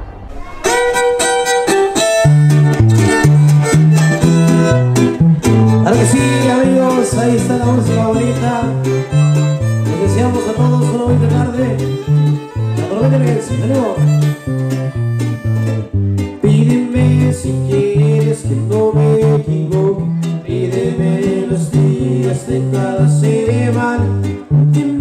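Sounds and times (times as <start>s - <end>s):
bass guitar line: 0.0s - 25.0s
strummed guitar chords: 0.0s - 25.0s
violin melody: 0.3s - 16.4s.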